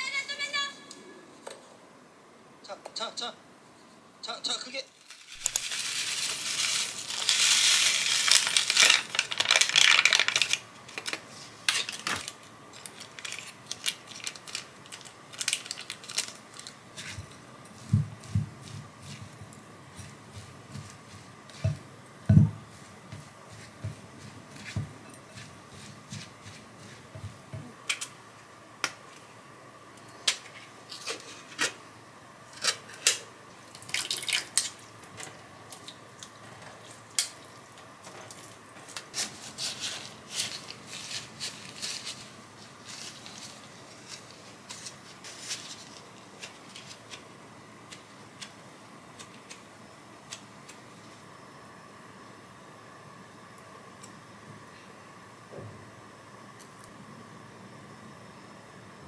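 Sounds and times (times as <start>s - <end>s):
gloved hands squishing rice: 4.9s - 27.8s, 36.8s - 49.6s.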